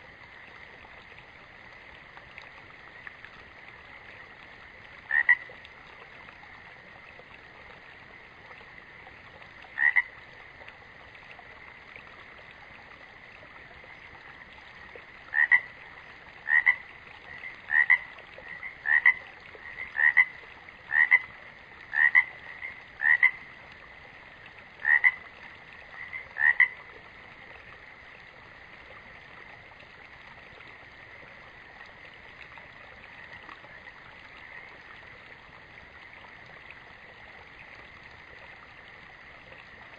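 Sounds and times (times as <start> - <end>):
frog chorus: 5.1 - 5.5, 9.7 - 10.2, 14.8 - 23.6, 24.8 - 26.9
loud single frog calls: 5.1 - 5.5, 9.8 - 10.1, 15.3 - 15.7, 16.4 - 16.8, 17.7 - 21.3, 21.9 - 23.5, 24.8 - 25.2, 26.0 - 26.8.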